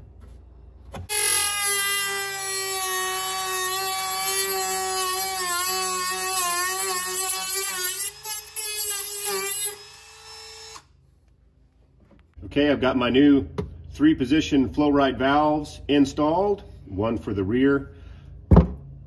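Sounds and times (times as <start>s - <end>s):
rotary tool whining: 1.0s - 10.9s.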